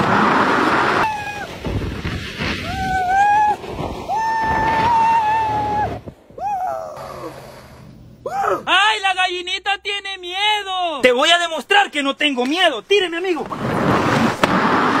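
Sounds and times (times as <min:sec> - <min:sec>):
rushing noise of water slide: 0:00.0 - 0:06.0
man yelling: 0:08.3 - 0:12.0.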